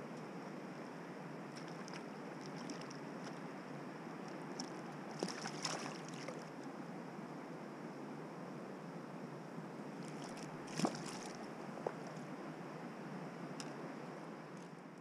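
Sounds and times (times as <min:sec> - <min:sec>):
fish splashing in water: 0:04.6 - 0:06.5, 0:10.0 - 0:11.4.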